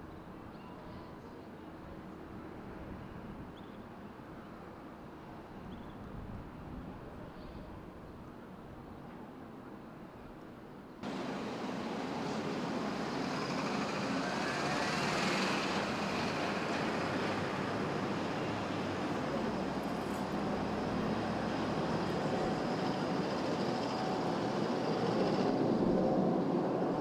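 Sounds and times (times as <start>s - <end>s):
jet aircraft flying low overhead: 11.0s - 27.0s.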